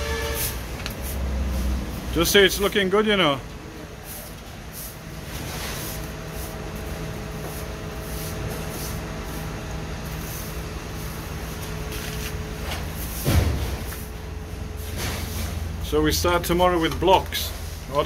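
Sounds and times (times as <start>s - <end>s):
thump: 13.2s - 13.9s.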